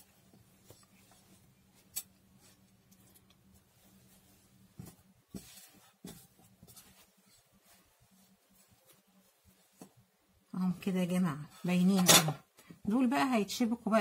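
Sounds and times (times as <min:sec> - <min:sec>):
fabric rustling: 0:00.0 - 0:12.8.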